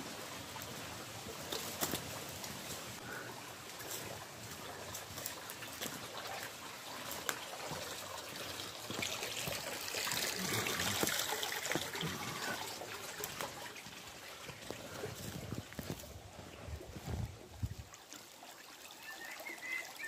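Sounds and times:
stream trickling over stones: 0.0s - 20.0s
footsteps crunching on dry litter: 13.1s - 17.9s.

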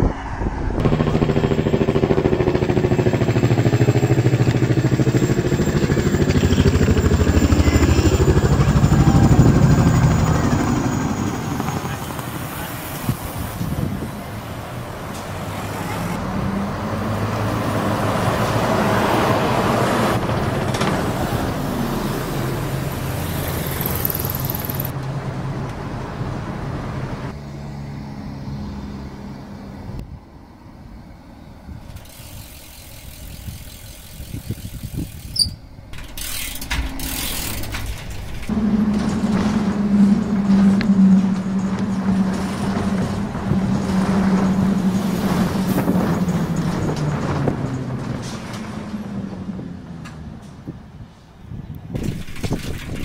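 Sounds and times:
car passing by: 0.0s - 1.4s, 11.6s - 30.0s, 36.4s - 50.7s
bus engine humming: 0.0s - 53.0s.

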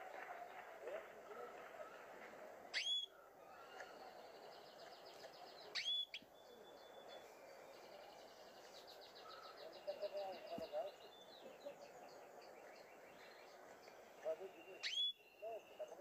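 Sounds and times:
faint fast bird trill: 2.7s - 4.8s, 5.4s - 12.0s, 12.6s - 16.0s
canary chirps: 2.7s - 16.0s.

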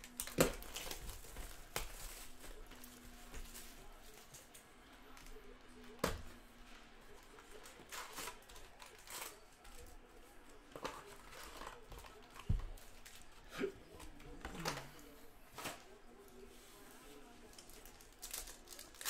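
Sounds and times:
card wrappers tearing and crinkling: 0.0s - 4.4s, 7.6s - 9.9s, 17.5s - 19.0s.

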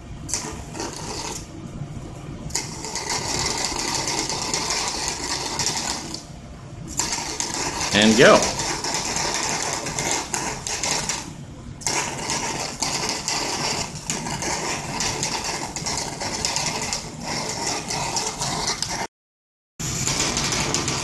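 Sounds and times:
plasma arc crackling and buzzing: 0.0s - 1.7s, 2.4s - 19.1s, 19.8s - 21.0s.

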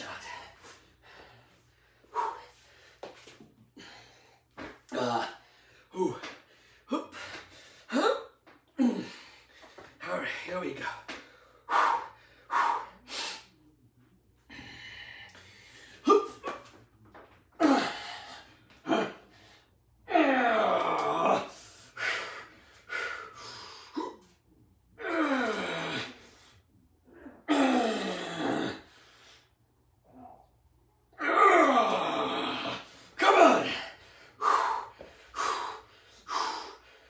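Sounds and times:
man breathing forcefully: 0.0s - 10.0s, 11.2s - 13.5s, 21.4s - 24.0s, 32.7s - 37.0s
man grunting and groaning: 4.9s - 6.3s, 6.9s - 7.3s, 7.9s - 9.3s, 16.0s - 16.6s, 17.6s - 18.2s, 18.8s - 19.3s, 20.1s - 21.6s, 25.0s - 26.2s, 27.2s - 28.9s, 31.2s - 34.0s.

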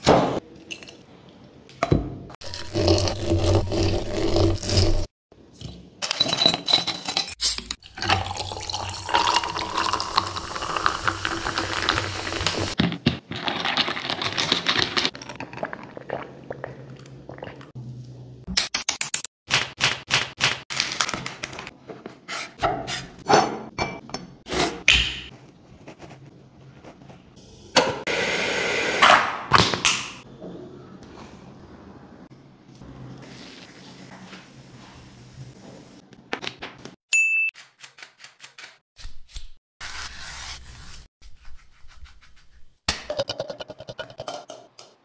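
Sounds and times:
limes muddled in glass jar: 2.4s - 5.1s
liquid pouring into jar: 7.9s - 12.0s.

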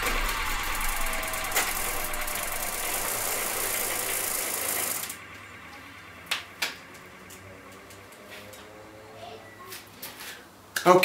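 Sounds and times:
bicycle chain rattling: 0.0s - 5.3s.

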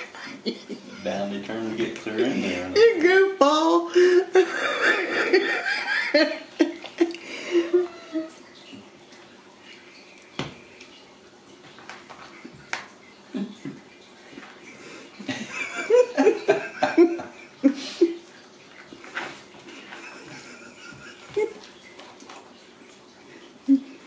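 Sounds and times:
person chuckling softly: 19.8s - 21.7s.

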